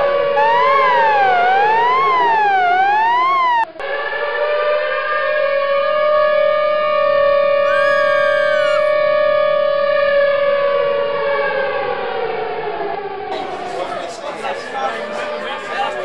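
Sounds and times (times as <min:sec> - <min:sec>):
siren wailing: 0:00.0 - 0:12.3.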